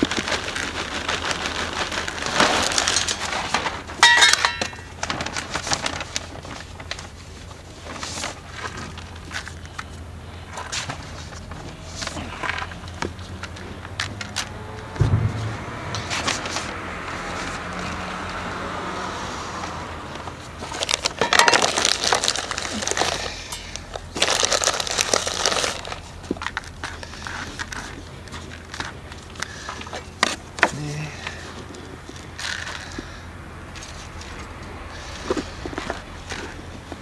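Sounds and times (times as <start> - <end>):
soil crunching and rustling: 0.0 - 15.0, 20.4 - 33.2
dull thump: 15.0 - 17.1.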